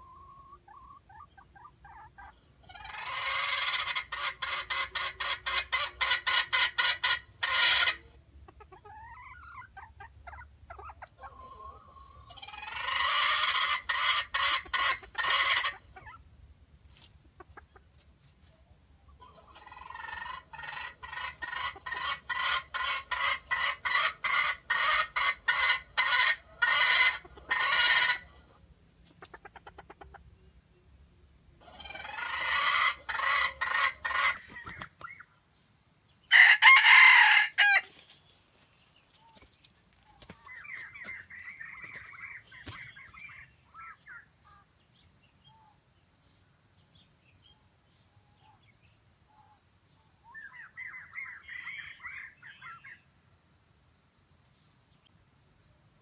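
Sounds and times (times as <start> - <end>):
jungle fowl clucking: 0.0 - 16.3, 16.9 - 30.6, 31.6 - 35.4, 36.2 - 38.2, 39.1 - 44.8, 49.3 - 53.1.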